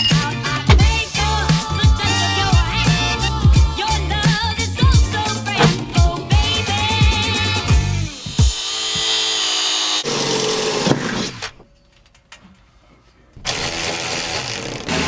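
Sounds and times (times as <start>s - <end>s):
angle grinder cutting metal: 7.4s - 10.9s.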